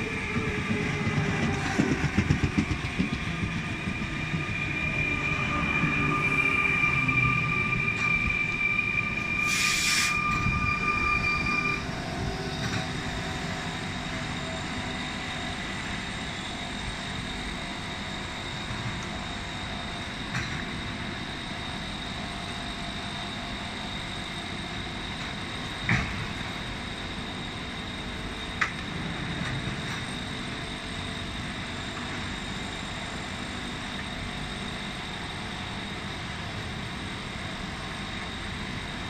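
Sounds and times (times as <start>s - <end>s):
electric train passing: 0.0s - 39.0s
high whine of train: 0.0s - 39.0s
short hiss: 9.4s - 10.2s.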